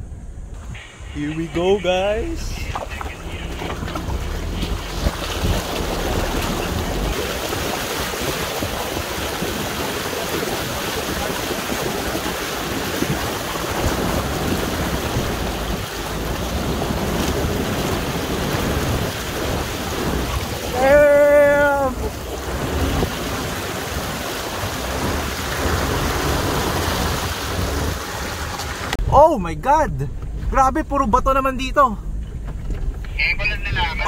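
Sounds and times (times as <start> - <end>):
water splashing against wheel: 2.1 - 29.0.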